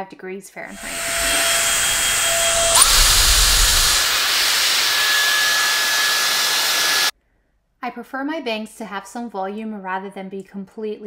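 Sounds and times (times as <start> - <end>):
motor whine: 0.7 - 7.1
rush of hot air: 0.8 - 7.1.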